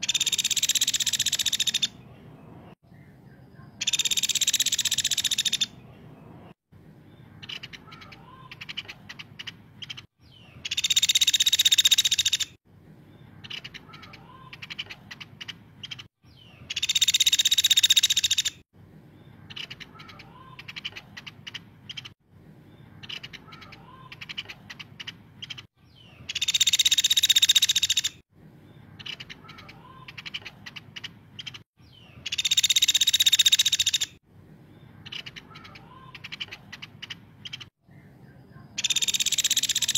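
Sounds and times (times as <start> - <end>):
woodpecker rattling trill calls: 0.0 - 2.0, 3.8 - 5.8, 7.4 - 12.6, 13.4 - 18.6, 19.5 - 22.2, 23.0 - 28.2, 29.0 - 34.2, 35.0 - 37.7, 38.8 - 39.9.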